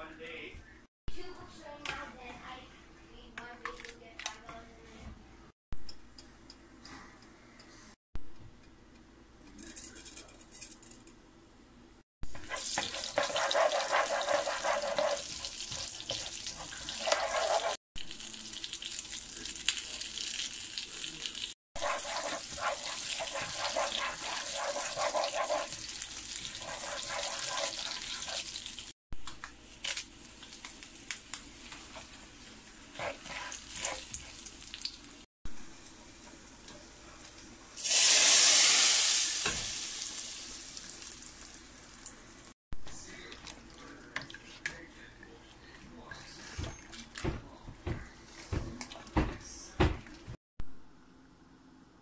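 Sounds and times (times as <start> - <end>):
spices sizzling in hot oil: 12.2 - 35.2, 37.8 - 42.4
spatula stirring in pan: 12.3 - 17.8, 21.8 - 28.8, 31.5 - 34.9.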